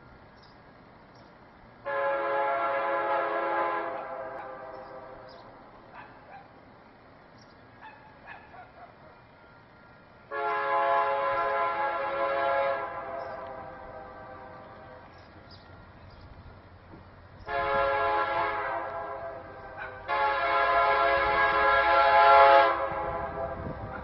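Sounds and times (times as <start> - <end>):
locomotive air horn blasts: 1.8 - 5.6, 9.0 - 24.0.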